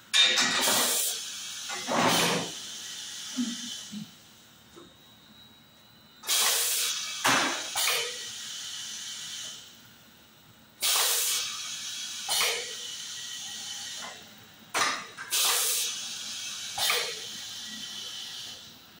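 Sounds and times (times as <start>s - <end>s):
compressed air hissing: 0.6s - 4.2s, 6.2s - 9.8s, 10.8s - 14.2s, 14.8s - 18.7s.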